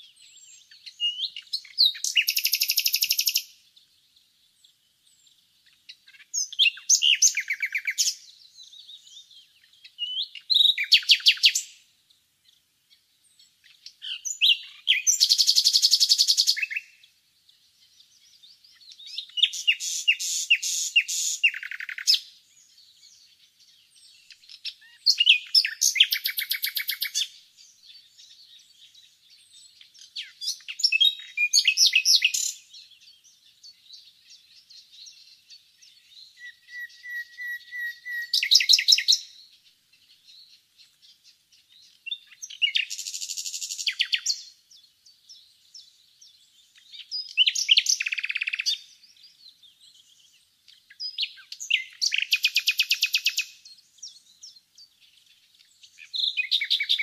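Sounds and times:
faint bird twittering: 0.0s - 57.0s
nightingale singing: 0.0s - 57.0s.

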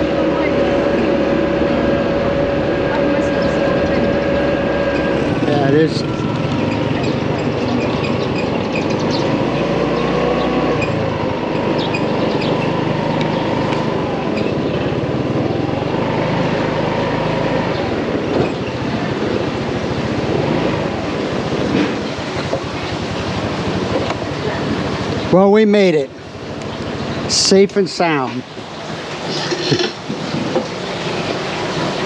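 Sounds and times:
motorcycle engine running: 0.0s - 25.5s
wind and road noise: 0.0s - 32.0s.

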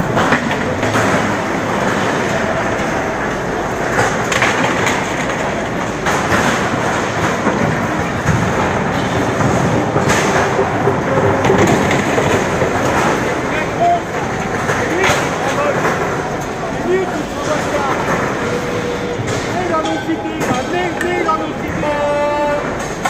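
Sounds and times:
protest crowd din: 0.0s - 23.0s
street noise: 0.0s - 23.0s
sharp cracks or bangs: 3.8s - 21.4s.

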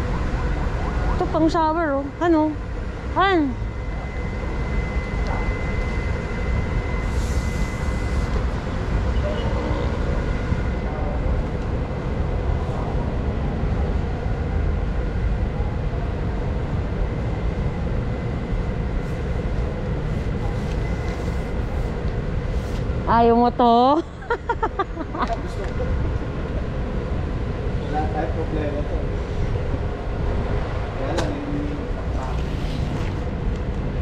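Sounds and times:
low rumble of store background noise: 0.0s - 34.0s.

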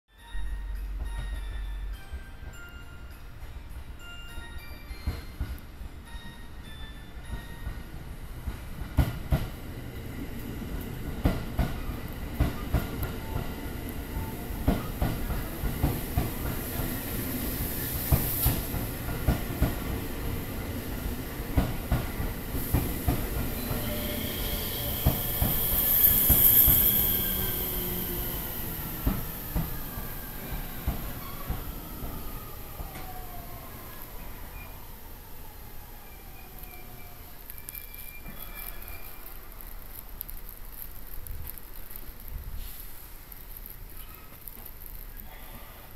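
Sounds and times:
train brakes squealing: 11.5s - 19.2s, 22.0s - 35.1s, 35.8s - 39.9s.

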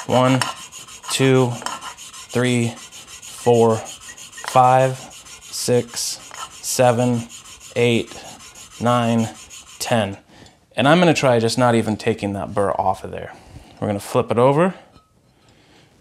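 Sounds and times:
plane iron rubbing on abrasive film: 0.0s - 10.1s.

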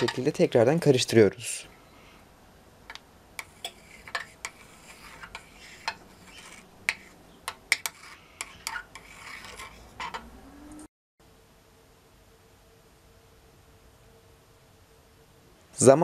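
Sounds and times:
soft rubbing: 3.4s - 10.3s.

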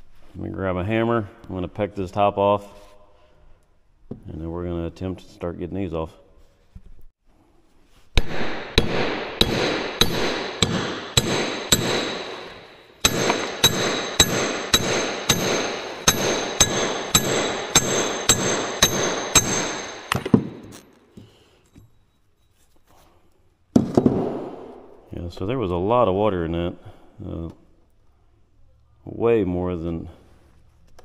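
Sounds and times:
hammer striking metal: 8.2s - 20.8s.

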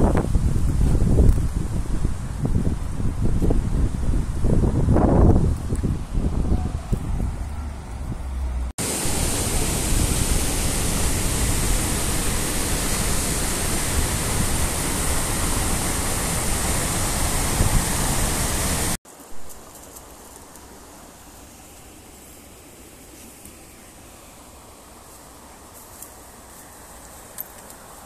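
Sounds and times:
waterfall rushing over rocks: 8.8s - 19.0s.

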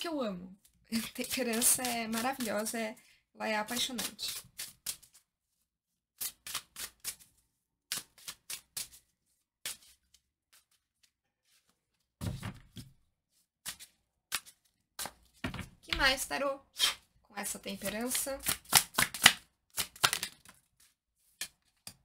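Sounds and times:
cards being shuffled: 0.6s - 2.7s, 3.7s - 5.2s, 6.2s - 12.9s, 13.7s - 16.2s, 17.8s - 22.0s.

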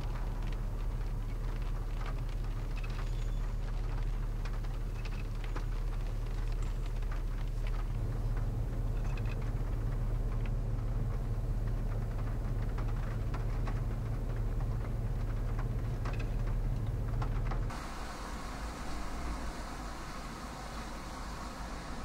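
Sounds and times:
road and engine rumble in car: 0.0s - 22.0s
light hiss: 17.7s - 22.0s.

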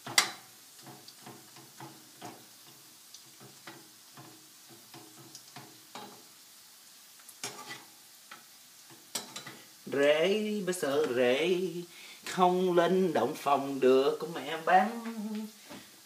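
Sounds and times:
spatula clattering on pan: 0.0s - 6.3s, 7.4s - 9.7s
spatula tapping and scraping pan: 0.0s - 6.3s, 7.4s - 9.7s
sausage sizzling in a frying pan: 0.0s - 16.0s.

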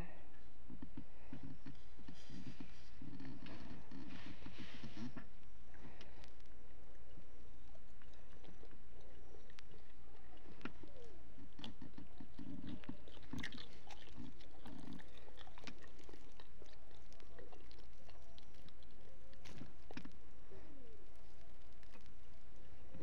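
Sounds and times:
person chewing food: 7.6s - 23.0s.

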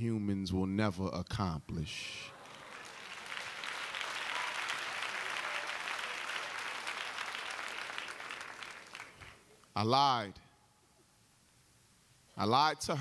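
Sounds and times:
audience applauding: 2.2s - 9.6s.

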